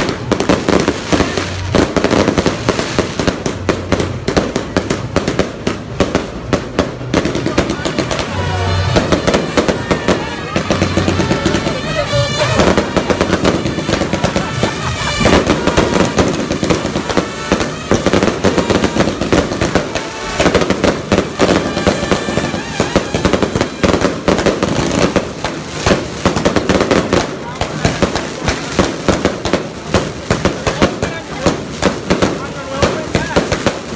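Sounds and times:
firecrackers popping: 0.0s - 33.9s
voices: 7.1s - 20.1s.

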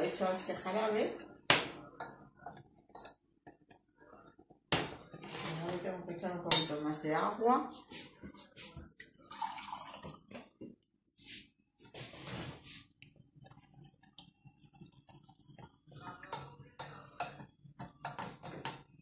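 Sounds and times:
spoon clinking in metal saucepan: 6.5s - 6.8s.

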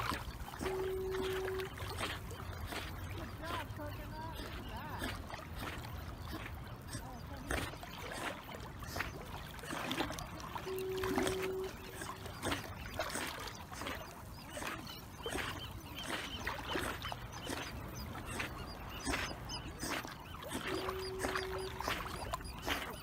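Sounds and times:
water sloshing and splashing: 0.0s - 23.0s
short steady tone: 0.6s - 1.9s, 10.6s - 12.2s.

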